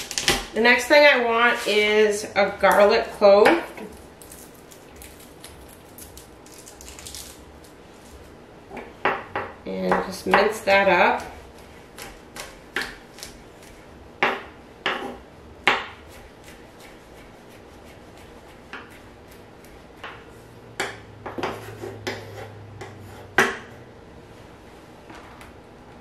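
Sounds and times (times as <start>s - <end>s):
knife chopping on wooden board: 12.0s - 20.2s, 20.8s - 23.7s.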